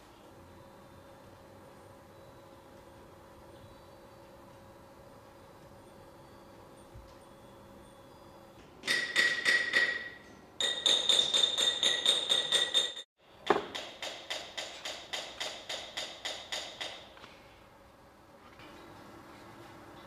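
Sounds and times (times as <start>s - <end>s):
tool tapping into clay mold: 8.8s - 17.1s.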